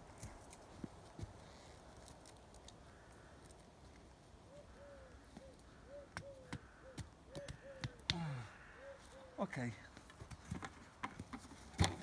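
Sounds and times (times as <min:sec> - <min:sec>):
bird calling: 0:04.4 - 0:09.8.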